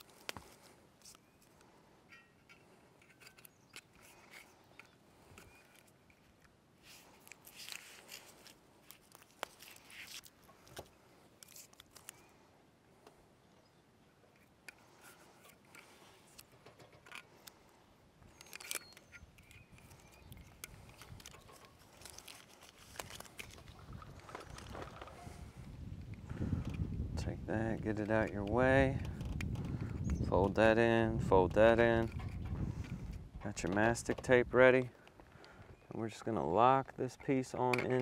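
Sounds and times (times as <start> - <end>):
tape rustling and tearing: 5.6 - 12.2, 18.3 - 25.2.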